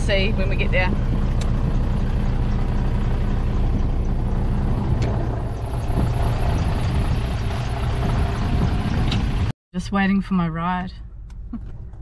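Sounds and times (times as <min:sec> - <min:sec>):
truck diesel engine idling: 0:00.0 - 0:09.5.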